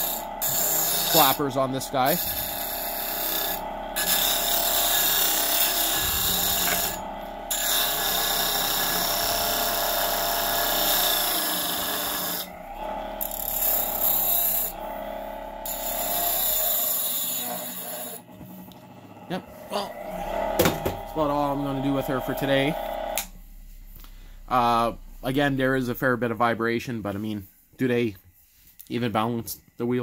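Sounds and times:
wood grinding on grinder wheel: 0.0s - 18.4s
bench grinder motor whine: 0.0s - 23.4s.

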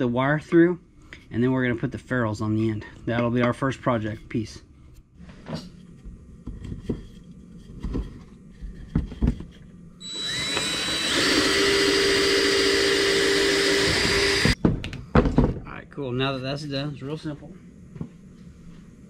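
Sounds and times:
cordless drill boring through wood: 10.0s - 14.6s.

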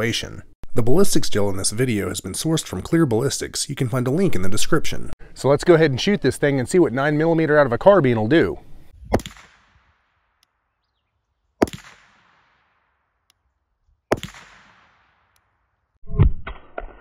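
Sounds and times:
rifle shots with echo: 9.1s - 10.2s, 11.6s - 13.1s, 14.1s - 15.4s.

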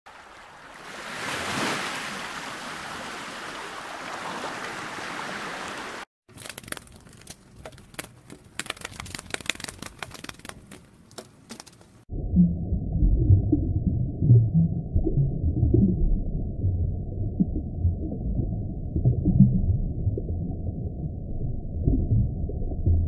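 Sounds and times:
water lapping: 0.1s - 6.1s
sharp clicks and ticks: 6.3s - 11.8s.

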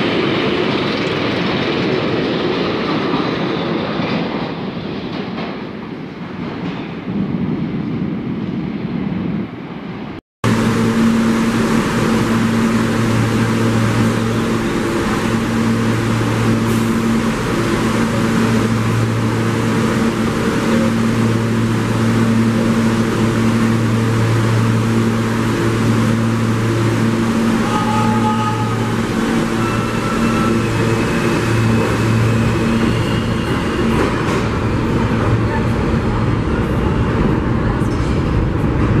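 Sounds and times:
high whine: 10.4s - 35.3s
loud mechanical drone: 10.4s - 36.9s.

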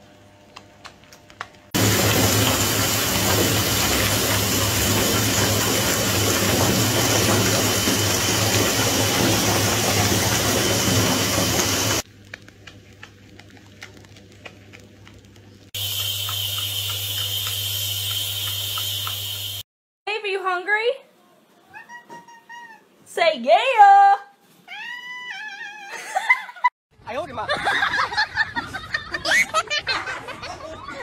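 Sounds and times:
bath water rushing: 1.8s - 12.0s, 15.8s - 19.6s.

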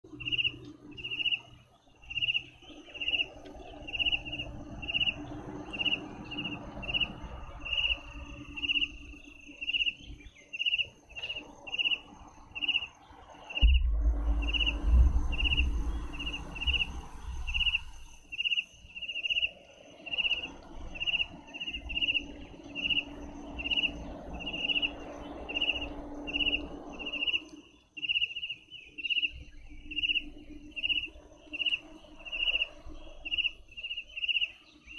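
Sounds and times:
cricket chirping: 0.0s - 34.9s
low rumble: 13.4s - 18.5s, 20.1s - 27.6s.

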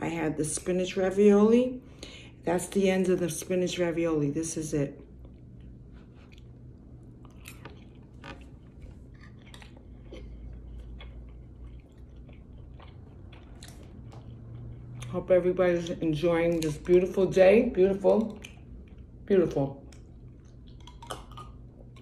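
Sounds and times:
faint low hum: 0.0s - 22.0s
person chewing food: 5.0s - 15.2s, 18.0s - 19.2s, 19.8s - 22.0s.

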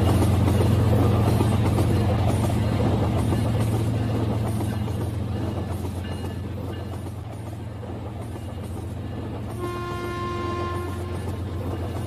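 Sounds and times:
toy train horn: 9.6s - 11.4s.

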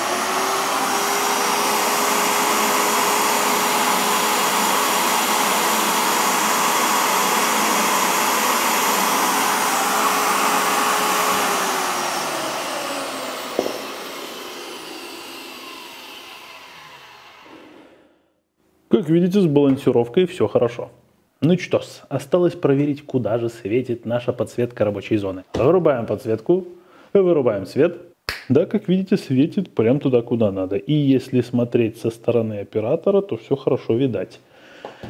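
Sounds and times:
circular saw motor whining: 0.0s - 18.1s.

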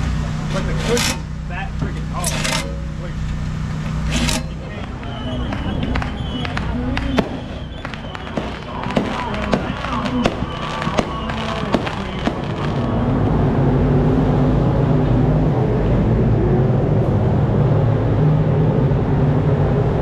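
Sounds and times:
race car engines rumbling: 0.0s - 20.0s
fireworks popping and crackling: 3.9s - 13.5s.

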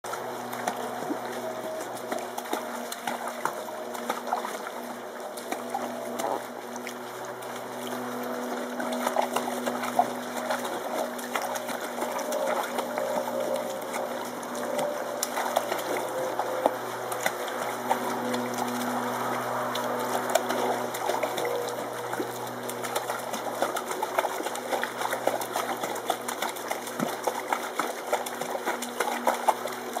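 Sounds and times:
water splashing in paddling pool: 0.0s - 30.0s
steady low hum: 0.1s - 30.0s.

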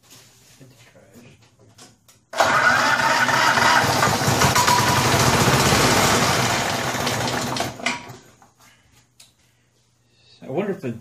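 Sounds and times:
lawn mower engine running rough: 2.4s - 7.9s.

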